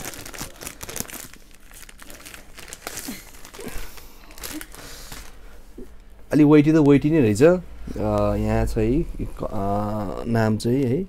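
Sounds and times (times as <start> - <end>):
packaging crinkling and rustling: 0.0 - 5.4.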